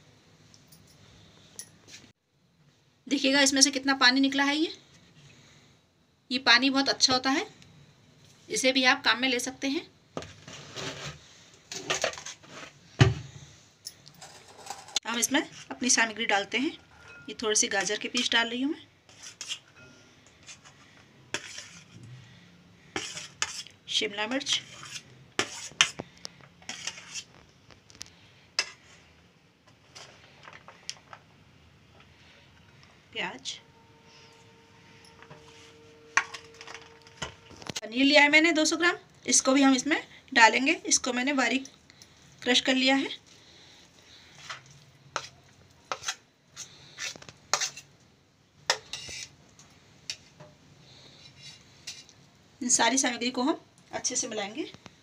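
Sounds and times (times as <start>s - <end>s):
spoon clinking on plate and bowl: 16.9s - 17.9s.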